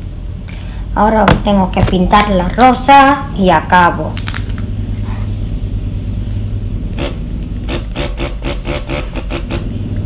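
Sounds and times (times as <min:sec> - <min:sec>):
small motor humming: 0:06.9 - 0:10.0.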